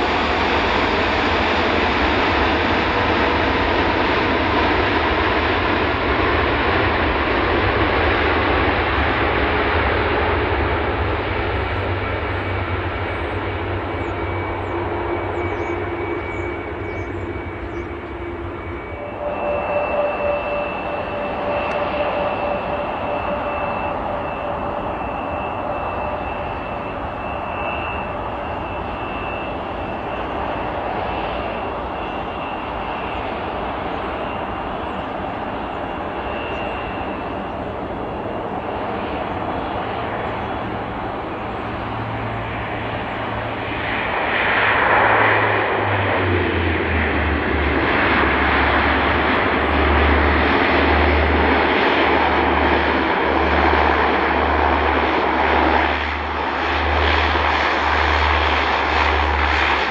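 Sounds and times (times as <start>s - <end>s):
turboprop engines whining: 0.0s - 59.9s
propeller thrum: 9.2s - 33.9s.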